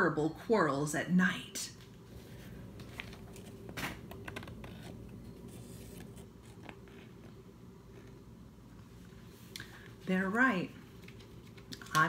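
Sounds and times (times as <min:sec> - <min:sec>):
low room hum: 0:00.0 - 0:12.0
book paper and cover rustling: 0:01.9 - 0:08.2.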